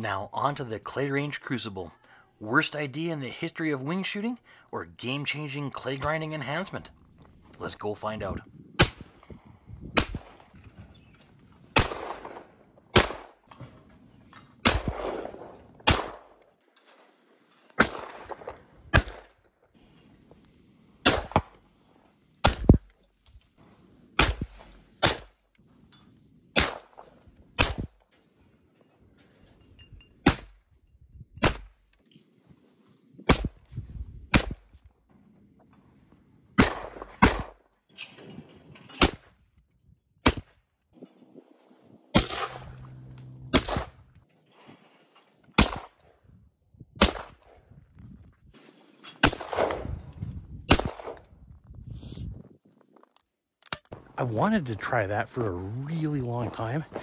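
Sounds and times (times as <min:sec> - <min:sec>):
shotgun shots: 0:08.8 - 0:09.2, 0:09.9 - 0:10.5, 0:11.7 - 0:13.5, 0:14.6 - 0:16.4, 0:17.8 - 0:19.4, 0:21.0 - 0:21.6, 0:22.4 - 0:22.9, 0:24.2 - 0:25.4, 0:26.5 - 0:28.0, 0:33.3 - 0:33.6, 0:34.3 - 0:34.7, 0:36.6 - 0:37.6, 0:42.1 - 0:44.0, 0:45.6 - 0:46.0, 0:47.0 - 0:47.5, 0:49.2 - 0:49.9, 0:50.7 - 0:51.2.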